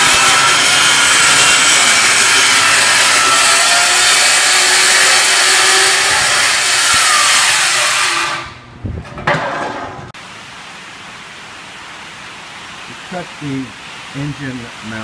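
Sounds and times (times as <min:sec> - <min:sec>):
circular saw cutting metal: 0:00.0 - 0:08.6
faint steady hiss: 0:10.2 - 0:15.0.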